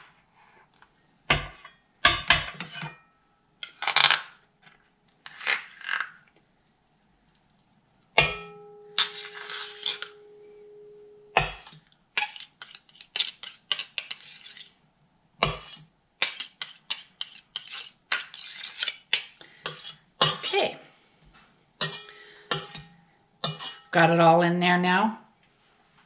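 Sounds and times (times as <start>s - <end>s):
utensils scraping metal cup: 9.0s - 10.2s, 11.5s - 14.7s, 15.4s - 20.7s.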